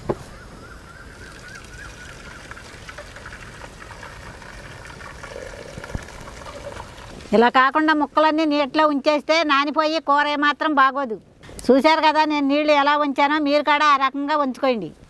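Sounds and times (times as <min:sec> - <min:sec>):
water pouring into metal strainer: 0:02.0 - 0:07.2.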